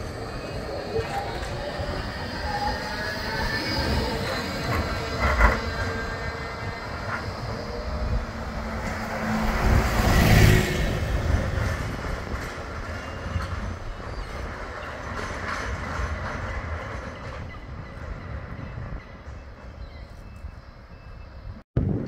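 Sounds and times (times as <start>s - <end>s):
bus passing close: 0.0s - 13.8s
tram running along track: 0.0s - 22.0s.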